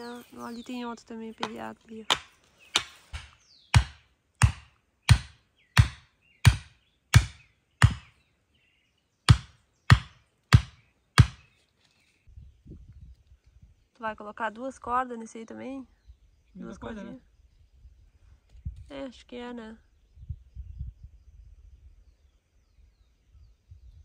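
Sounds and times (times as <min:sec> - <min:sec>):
tool striking wooden stake: 0:01.4 - 0:08.2, 0:09.3 - 0:11.5.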